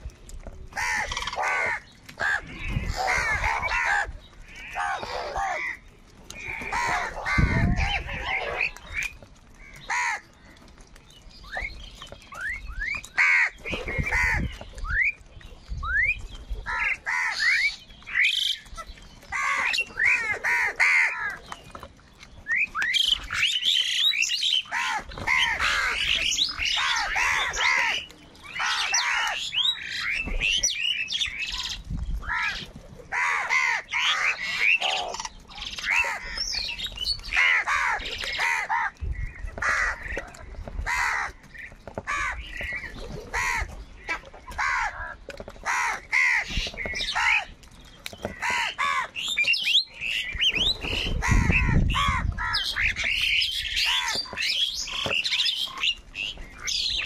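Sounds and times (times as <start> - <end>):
crows cawing: 0.8 - 8.8, 9.6 - 10.4, 13.1 - 14.5, 16.7 - 18.5, 19.3 - 21.5, 24.7 - 30.1, 32.2 - 36.6, 37.2 - 39.0, 39.6 - 47.5, 48.3 - 49.2, 51.2 - 56.0.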